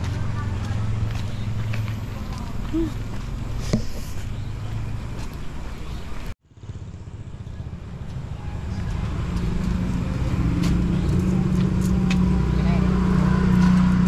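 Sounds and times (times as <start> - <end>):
traffic engine hum: 0.0 - 14.0.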